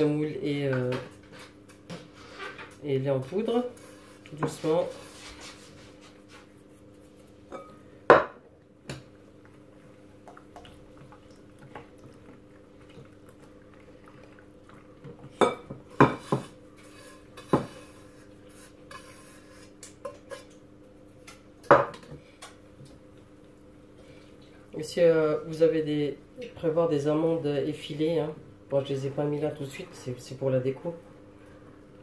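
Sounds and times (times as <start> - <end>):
whisk stirring batter in bowl: 16.0 - 20.6.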